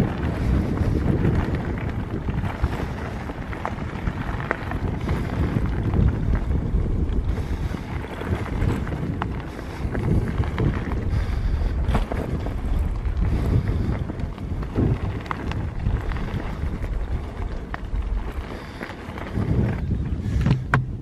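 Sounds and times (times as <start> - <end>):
bike knocks and rattles: 0.0 - 21.0
tyres crunching on gravel: 0.0 - 21.0
wind buffeting microphone: 0.0 - 21.0.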